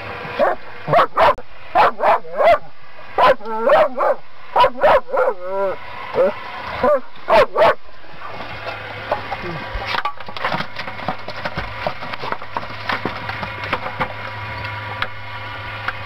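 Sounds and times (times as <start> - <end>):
steady low hum: 0.0 - 16.0
dog crying: 0.4 - 7.8.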